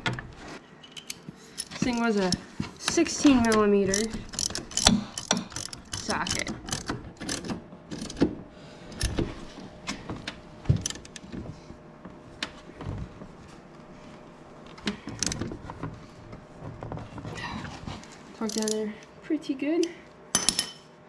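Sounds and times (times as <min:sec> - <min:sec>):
hand ratchet clicking: 0:01.0 - 0:08.2.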